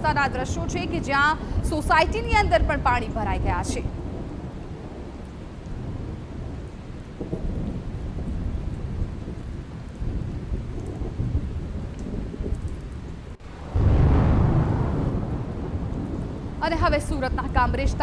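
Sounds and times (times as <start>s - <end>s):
heavy rain falling: 0.0s - 18.0s
low rumble: 13.4s - 16.7s.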